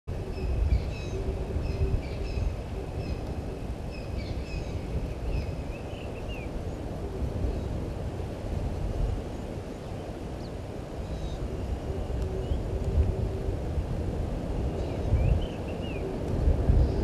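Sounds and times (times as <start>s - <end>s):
birds chirping: 0.1s - 6.9s.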